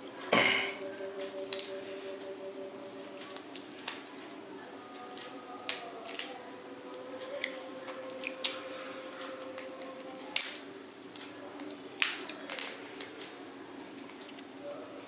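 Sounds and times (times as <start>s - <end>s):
prawn shell crackling: 3.1s - 6.5s, 7.2s - 14.6s.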